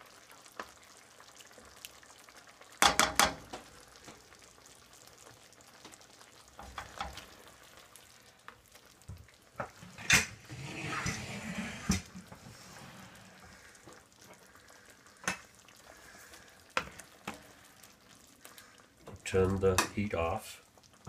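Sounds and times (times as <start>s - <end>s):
sauce simmering: 0.0s - 21.0s
spoon knocking and scraping pan: 2.8s - 3.6s, 6.6s - 7.2s, 16.8s - 17.4s, 19.1s - 20.0s.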